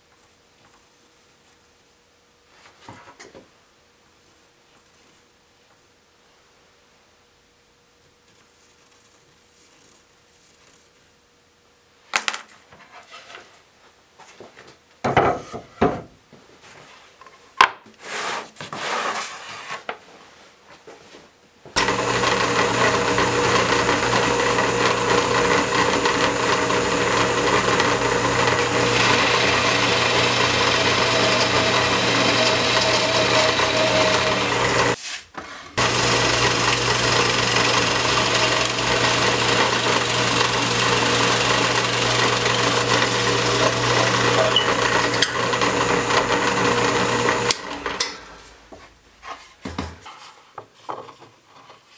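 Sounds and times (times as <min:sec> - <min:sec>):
drill press boring into wood: 0:21.8 - 0:35.0, 0:35.8 - 0:48.2.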